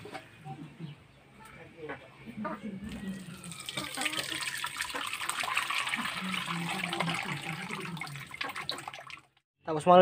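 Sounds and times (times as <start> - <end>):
wet squelching of squeezed coconut: 3.2 - 9.3.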